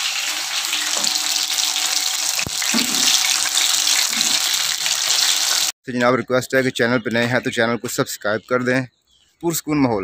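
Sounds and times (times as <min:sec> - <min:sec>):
food sizzling in hot oil: 0:00.0 - 0:05.8.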